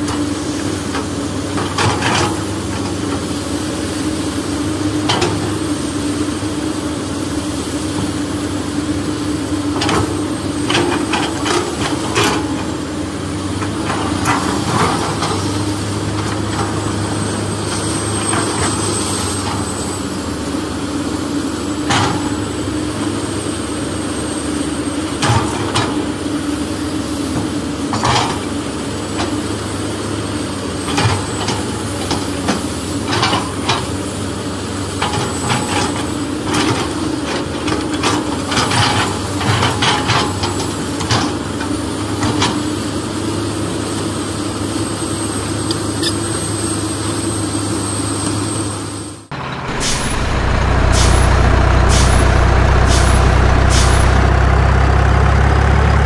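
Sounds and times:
low mechanical hum: 34.6s - 56.0s.

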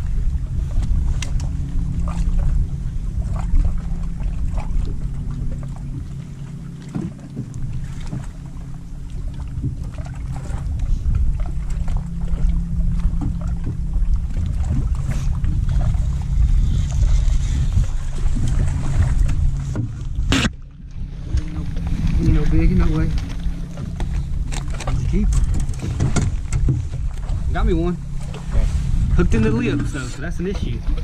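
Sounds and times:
wind on microphone: 0.0s - 31.0s
small ticks and knocks: 6.8s - 8.4s, 13.1s - 14.9s, 23.2s - 27.4s.

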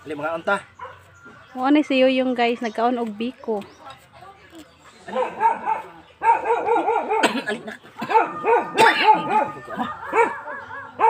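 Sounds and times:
dog yapping: 5.1s - 7.3s, 8.0s - 11.0s.

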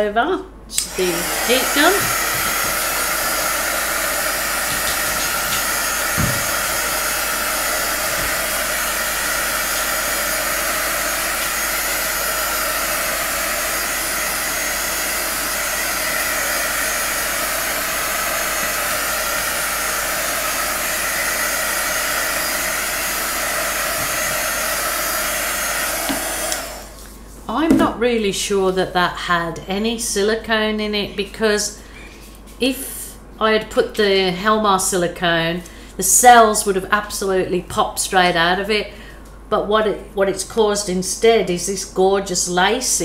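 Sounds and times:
heat gun fan blowing: 0.7s - 27.7s.

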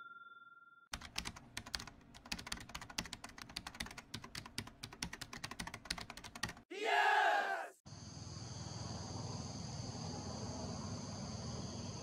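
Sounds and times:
keyboard keystroke clicks: 1.0s - 6.6s.

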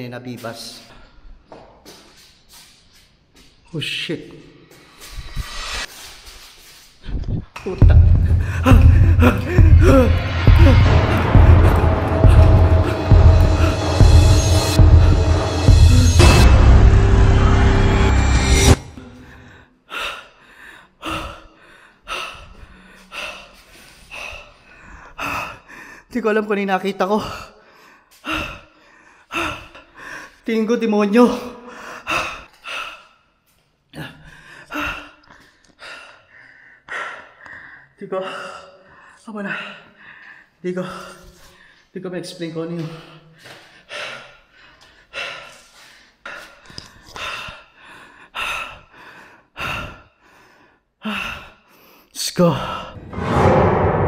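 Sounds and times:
man panting: 7.8s - 11.3s, 19.0s - 26.1s, 27.2s - 30.5s, 31.6s - 41.9s, 42.8s - 52.1s
man breathing hard: 7.9s - 14.5s, 19.0s - 26.1s, 27.2s - 30.4s, 31.6s - 41.9s, 42.9s - 52.1s.

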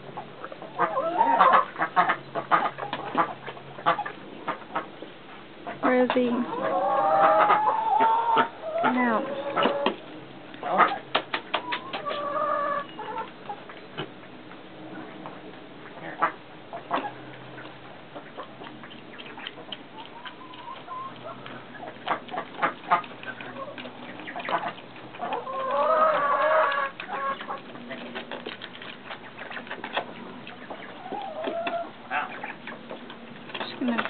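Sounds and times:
chickens clucking: 0.0s - 34.0s
chicken drawn-out call: 0.8s - 4.9s, 6.5s - 10.0s, 10.6s - 13.3s, 15.9s - 27.7s, 29.0s - 32.8s.

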